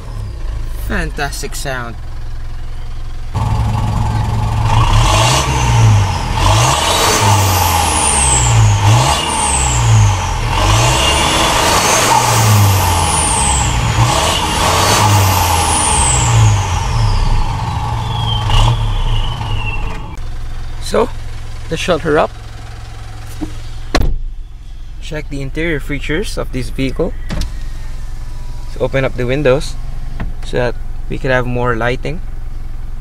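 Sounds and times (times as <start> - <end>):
diesel engine revving: 0.0 - 33.0
high whistle sliding down: 17.0 - 20.2.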